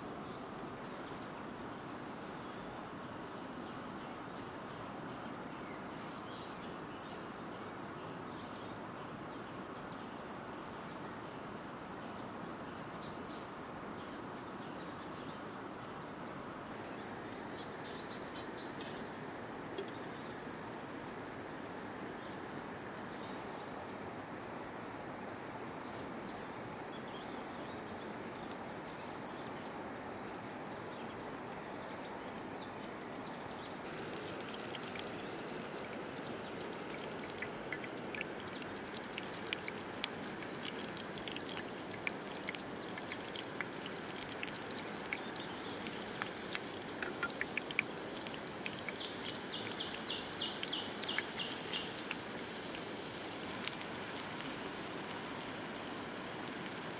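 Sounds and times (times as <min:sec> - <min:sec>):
faint high chirps and ticks: 0:00.2 - 0:56.9
flowing river water: 0:31.1 - 0:56.9.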